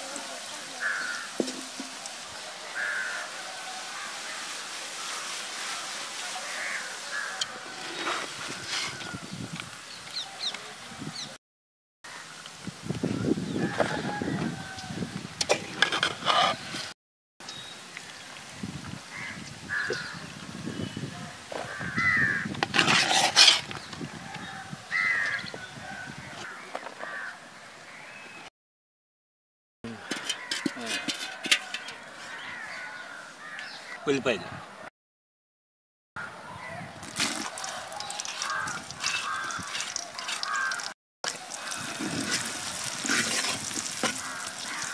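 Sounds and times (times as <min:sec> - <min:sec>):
food frying in oil: 0:00.0 - 0:07.4, 0:37.0 - 0:44.9
crows cawing: 0:00.7 - 0:01.8, 0:02.6 - 0:05.4, 0:06.3 - 0:07.7, 0:19.1 - 0:20.2, 0:21.6 - 0:22.5, 0:24.9 - 0:25.5, 0:26.4 - 0:28.0, 0:32.2 - 0:34.1, 0:37.4 - 0:43.2, 0:43.8 - 0:44.9
rustling noise: 0:04.1 - 0:09.8, 0:41.4 - 0:44.9.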